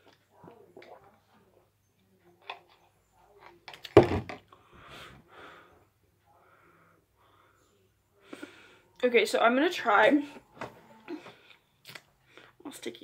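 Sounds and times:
plastic cup thump: 3.8s - 4.4s.

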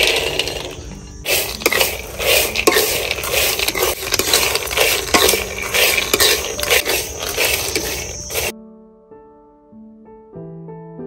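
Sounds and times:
peanuts rattling in a dry pan: 0.0s - 8.5s.

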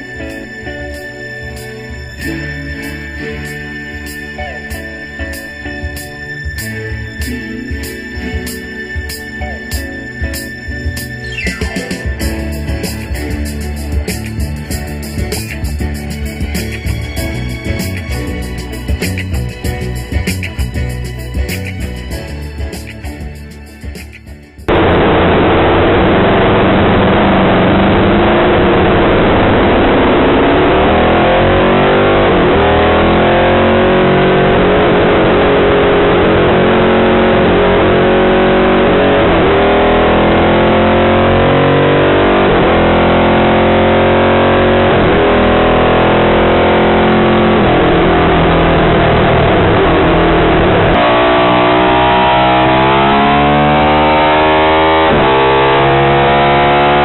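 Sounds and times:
motorcycle engine revving: 24.7s - 57.0s.

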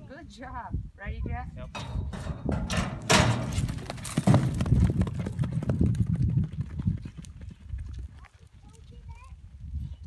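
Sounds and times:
horse hooves galloping on dirt: 2.4s - 9.3s.

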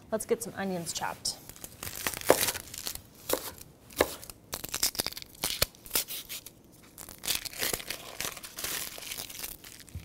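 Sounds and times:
onion skin crackling and tearing: 1.4s - 10.0s.

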